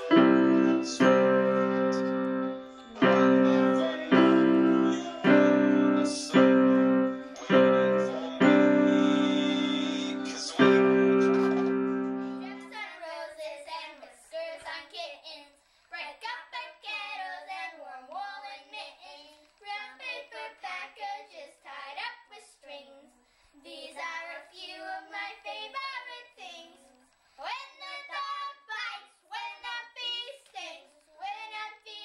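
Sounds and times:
electronic keyboard chord: 0.0s - 12.6s
girls singing together: 0.0s - 15.1s.

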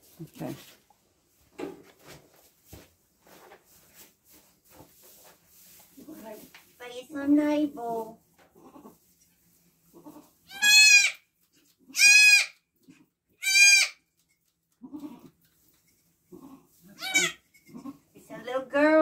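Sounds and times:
goat bleating: 10.0s - 11.2s, 11.9s - 12.6s, 13.4s - 14.0s, 14.8s - 15.3s, 16.3s - 18.0s.

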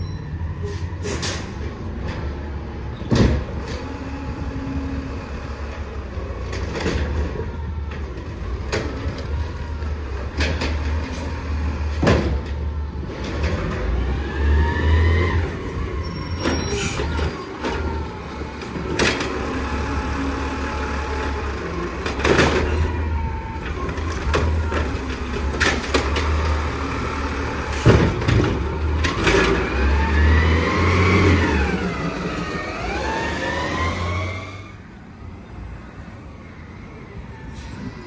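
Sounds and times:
garbage truck engine rumble: 0.0s - 36.1s
brief squeal: 16.0s - 17.2s, 37.4s - 38.0s.

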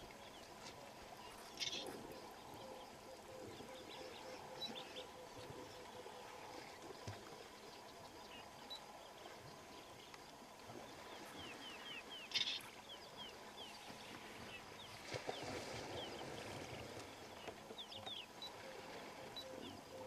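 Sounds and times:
elephant splashing water: 14.0s - 17.2s.

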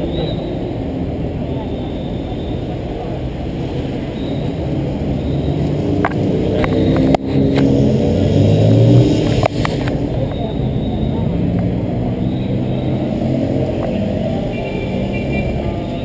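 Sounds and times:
vehicle engine revving: 3.4s - 16.0s.

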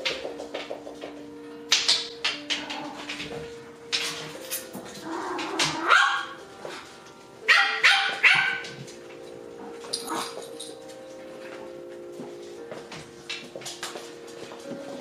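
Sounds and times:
puppies yapping: 5.0s - 6.8s, 7.4s - 8.8s.

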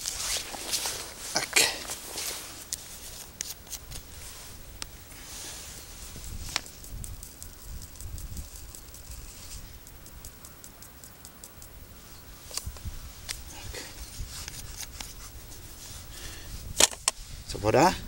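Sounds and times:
wind rumble on microphone: 3.8s - 10.4s, 11.7s - 18.0s.

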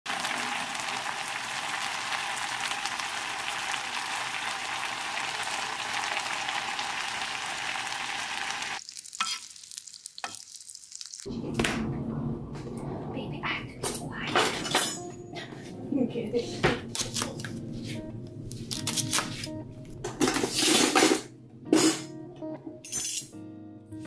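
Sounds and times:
stew boiling and bubbling: 0.0s - 13.0s.

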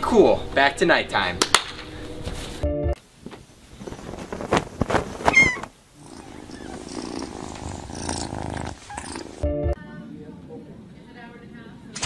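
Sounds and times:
kitten purring: 5.3s - 9.4s.

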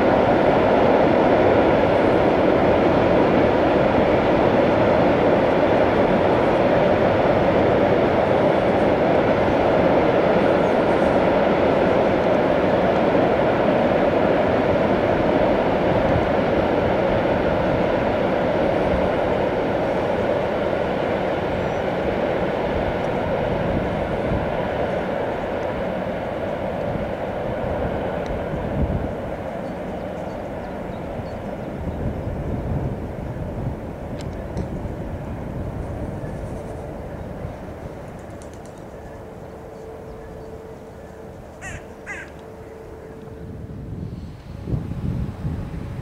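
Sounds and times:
steady hum: 0.0s - 46.0s
train rumbling over steel bridge: 0.0s - 46.0s
bird calling: 38.6s - 43.4s.

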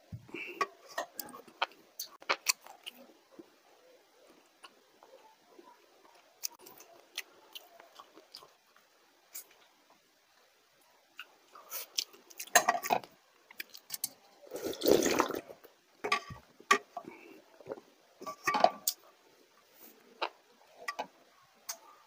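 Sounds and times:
slurping and gulping: 14.5s - 15.7s.

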